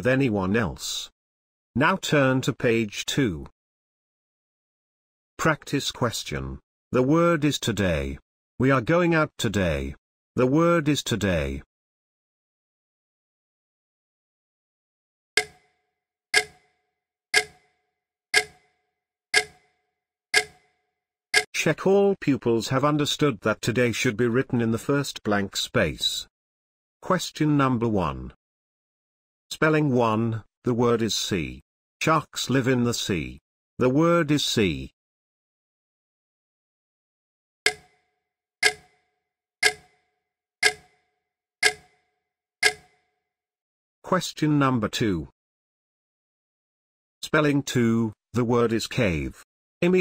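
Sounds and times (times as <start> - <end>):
clock ticking: 15.4 - 15.7, 16.4 - 16.7, 17.4 - 17.7, 18.4 - 18.7, 19.4 - 19.7, 20.4 - 20.7, 37.7 - 38.0, 38.6 - 39.0, 39.6 - 40.0, 40.6 - 41.0, 41.6 - 42.0, 42.6 - 43.0.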